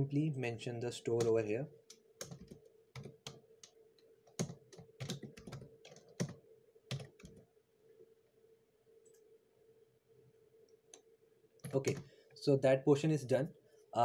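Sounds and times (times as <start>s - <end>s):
typing on computer keyboard: 1.2s - 7.4s.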